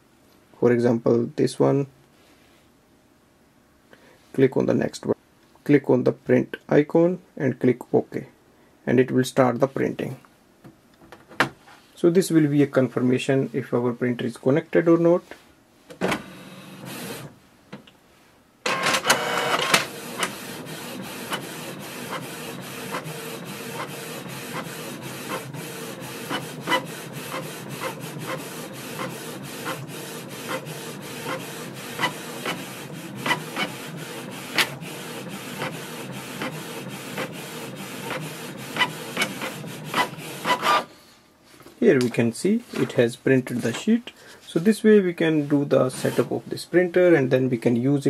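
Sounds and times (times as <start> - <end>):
inkjet printer whirring: 16.2 - 17.3, 18.7 - 40.9, 45.9 - 46.3
printer mechanism burst: 18.7 - 40.9, 45.9 - 46.3.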